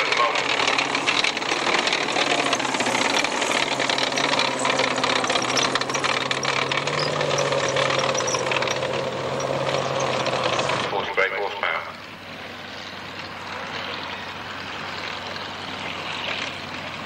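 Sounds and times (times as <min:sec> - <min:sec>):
steel tracks clattering: 0:00.0 - 0:11.0
engine droning: 0:00.0 - 0:17.0.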